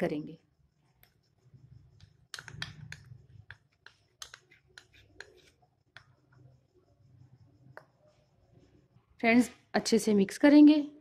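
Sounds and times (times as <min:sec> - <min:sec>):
spoon scraping and tapping bowl: 0:02.0 - 0:06.2.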